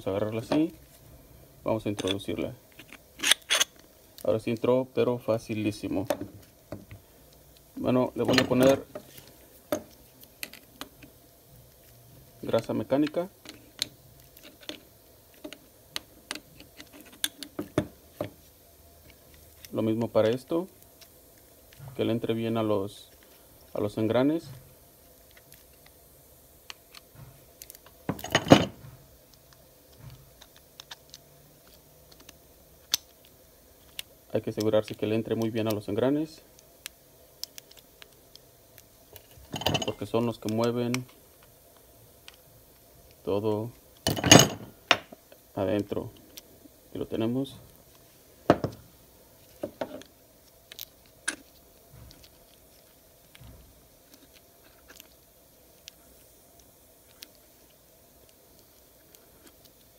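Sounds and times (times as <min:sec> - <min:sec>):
clicks and squishing of grease: 0:36.5 - 0:43.3, 0:49.5 - 0:59.9.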